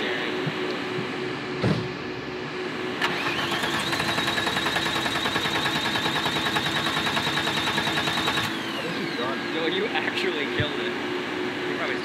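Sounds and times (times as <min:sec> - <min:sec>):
thump: 0:01.6 - 0:01.9
car starter cranking engine: 0:03.0 - 0:09.3.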